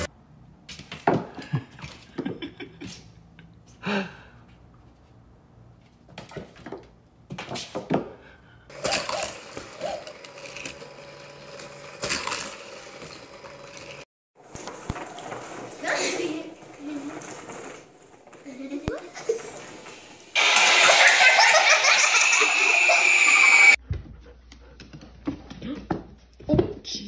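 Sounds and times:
small electric motor whirring: 0:08.7 - 0:14.0.

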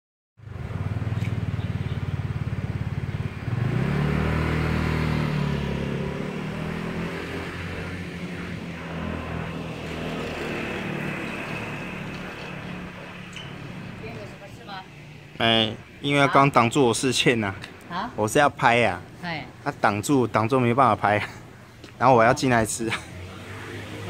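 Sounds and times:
steady traffic noise: 0:00.4 - 0:24.0
vehicle engine revving: 0:00.5 - 0:13.0.

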